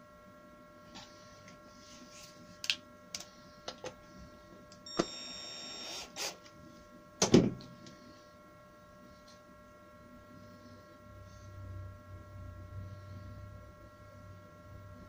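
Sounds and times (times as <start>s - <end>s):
cordless drill whirring: 4.9s - 6.4s.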